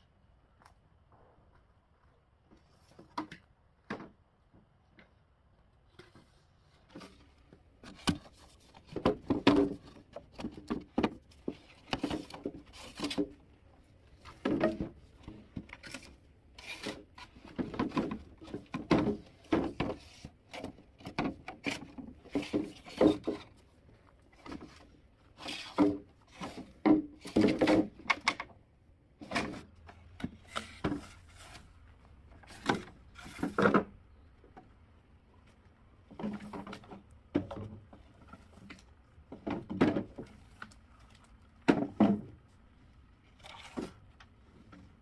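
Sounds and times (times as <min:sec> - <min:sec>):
wood knocks and scrapes: 0:06.0 - 0:13.4, 0:14.2 - 0:23.6, 0:24.4 - 0:28.5, 0:29.2 - 0:34.0, 0:41.6 - 0:42.4.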